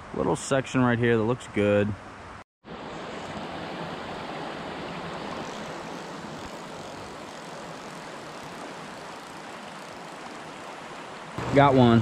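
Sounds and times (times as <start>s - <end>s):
stream rushing over rocks: 2.7s - 11.6s.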